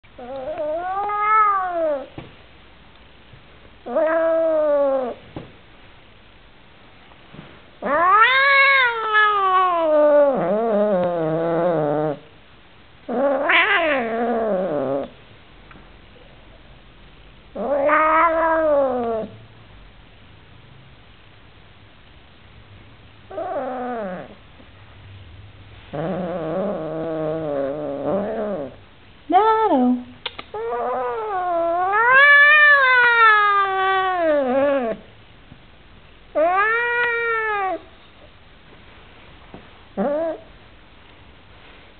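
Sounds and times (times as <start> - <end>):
cat yowling: 0.2 - 2.1, 3.9 - 5.2, 7.8 - 12.2, 13.1 - 15.1, 17.6 - 19.3, 23.3 - 24.4, 30.6 - 35.0, 36.3 - 37.9.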